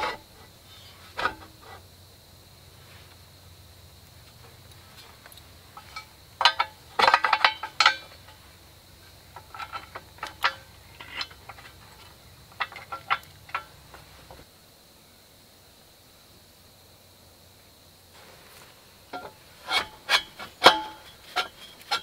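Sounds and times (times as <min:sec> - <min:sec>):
metal brackets clanking: 0:01.2 - 0:01.8, 0:04.4 - 0:08.5, 0:09.2 - 0:14.4, 0:19.1 - 0:22.0.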